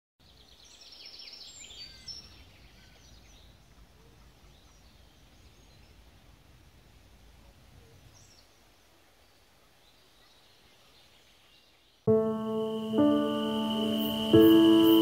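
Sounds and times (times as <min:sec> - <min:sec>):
low steady background noise: 0:00.2 - 0:15.0
birds chirping and trilling: 0:00.4 - 0:03.7.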